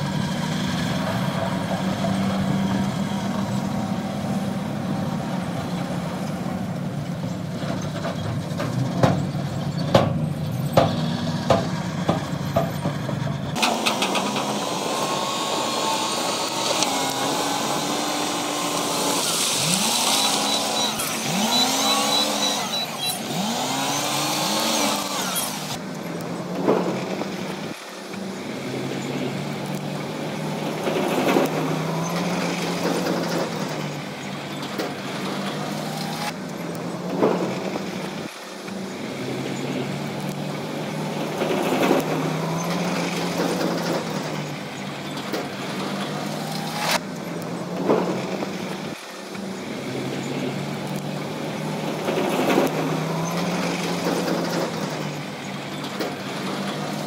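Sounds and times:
diesel engine drone: 0:00.0 - 0:57.0
engine revving: 0:00.0 - 0:57.0
sharp knocks: 0:10.8 - 0:14.3.

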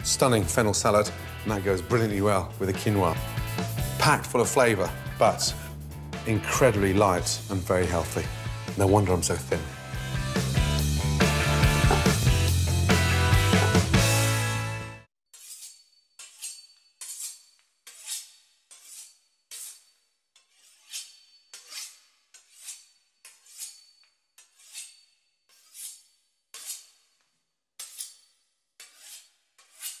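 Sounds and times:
knife sawing through crisp pastry: 0:15.3 - 0:27.2, 0:27.8 - 0:30.0.

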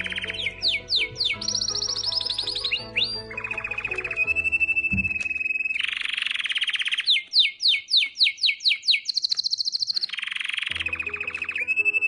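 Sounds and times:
canary singing trills: 0:00.0 - 0:12.0.

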